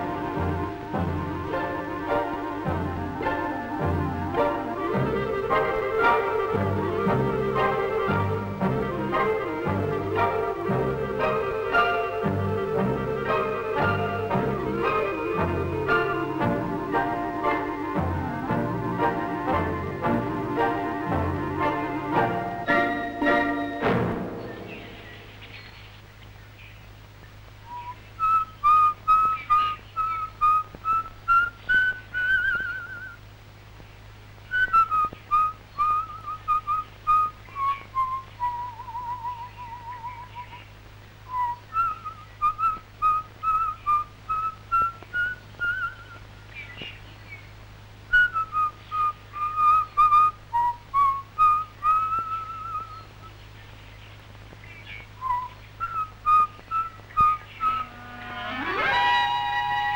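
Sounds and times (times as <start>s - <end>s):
whistled tune: 0.0s - 25.3s, 27.7s - 33.2s, 34.5s - 40.6s, 41.3s - 46.2s, 48.1s - 53.1s, 55.2s - 59.9s
faint clicks: 54.2s - 54.7s.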